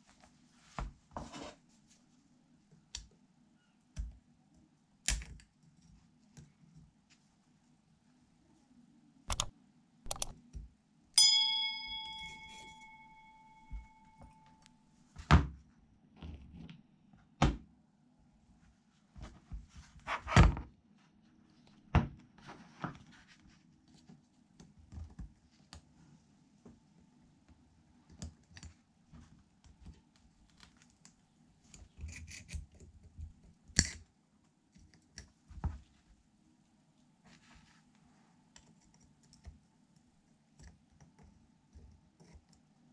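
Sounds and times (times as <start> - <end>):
bell-like ring: 11.2 - 14.7.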